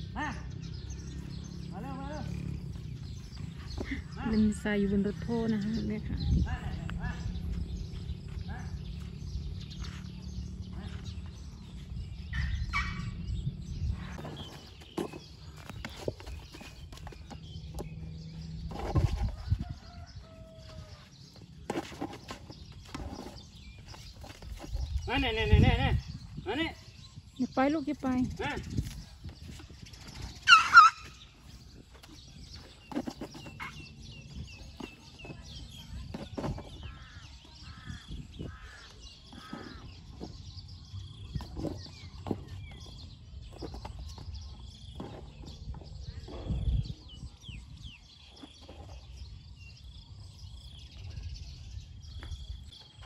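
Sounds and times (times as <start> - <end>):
small birds chirping: 0.0 - 53.0
soft knocks of feet and tyre: 14.1 - 25.0.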